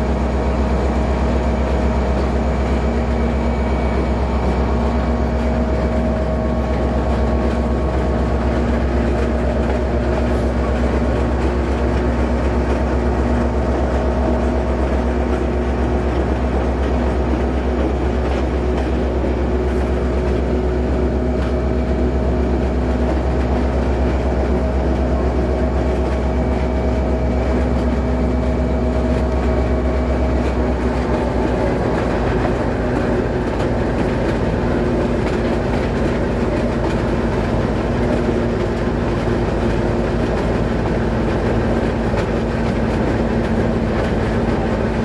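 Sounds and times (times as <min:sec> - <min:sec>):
diesel locomotive engine drone: 0:00.0 - 0:45.0
train wheels on rails: 0:00.0 - 0:45.0.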